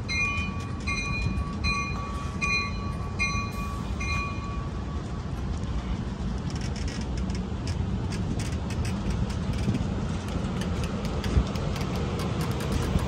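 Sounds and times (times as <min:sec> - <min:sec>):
diesel locomotive running: 0:00.0 - 0:13.0
train rumbling past: 0:00.0 - 0:13.0
wheel clicks on rails: 0:06.3 - 0:13.0.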